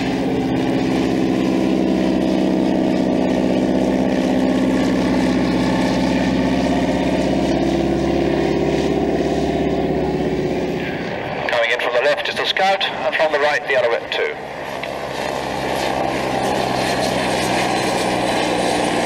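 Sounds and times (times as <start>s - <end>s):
propeller plane droning overhead: 0.0s - 19.0s.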